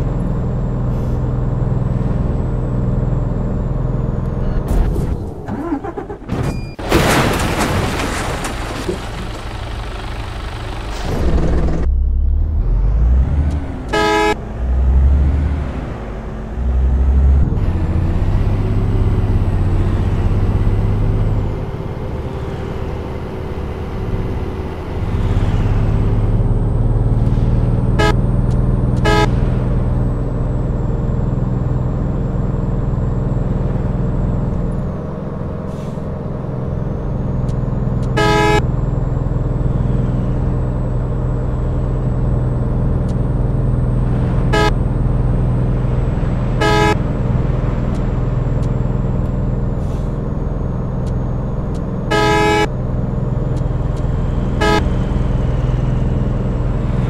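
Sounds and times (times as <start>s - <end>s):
vehicle engine running: 8.6s - 15.4s
short horn honks: 13.9s - 14.4s, 28.0s - 28.2s, 29.0s - 29.5s, 38.1s - 38.6s, 44.5s - 44.8s, 46.6s - 47.0s, 52.1s - 52.7s, 54.6s - 55.0s.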